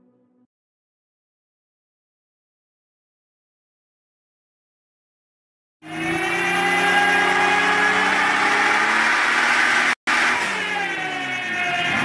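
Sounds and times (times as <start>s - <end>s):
engine running on dynamometer: 5.8s - 12.0s.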